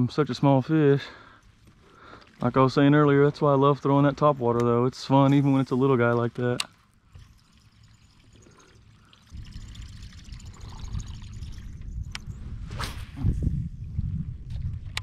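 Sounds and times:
water trickling and splashing: 0.7s - 11.9s.

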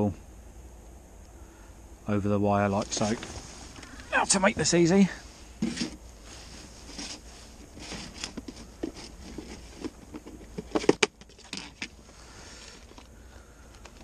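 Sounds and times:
rustling in plastic box: 5.4s - 13.1s.

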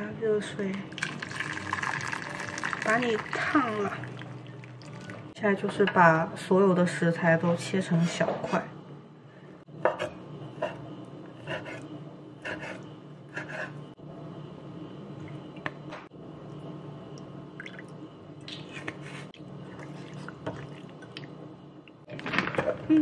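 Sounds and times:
liquid pouring into bowl: 0.9s - 5.3s
wet hand mixing sounds: 0.9s - 5.3s.

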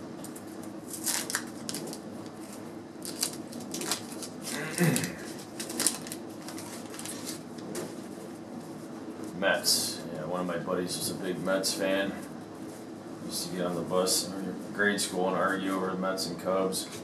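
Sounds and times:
wax paper wrapper crinkling: 0.2s - 7.7s.

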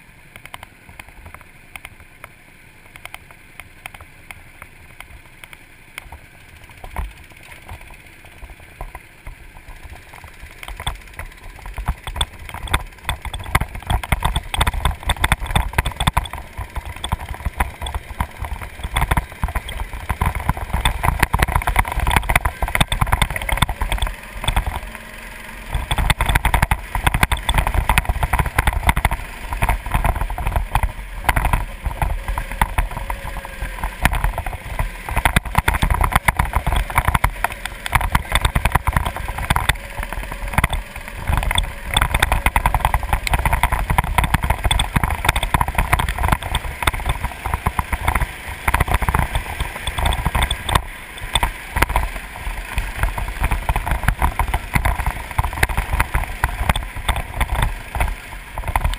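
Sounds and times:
go-kart engine running: 0.0s - 58.9s
wind rumble on microphone: 25.7s - 58.9s.

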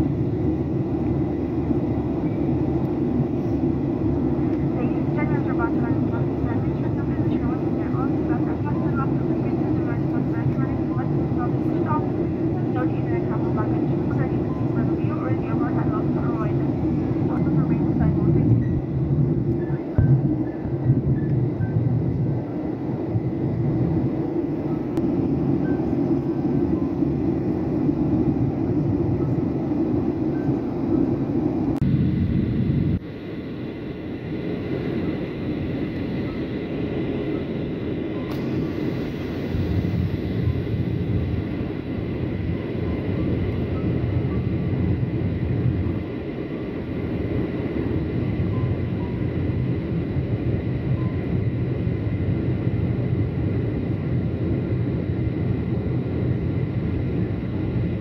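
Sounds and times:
jet engine and airflow roar: 0.0s - 58.0s
faint high whine: 24.4s - 58.0s.

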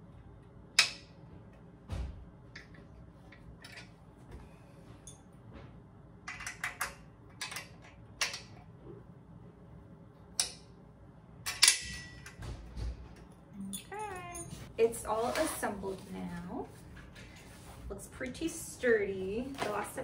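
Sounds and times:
metal bolts and nuts clinking: 2.6s - 3.9s, 11.5s - 12.4s.

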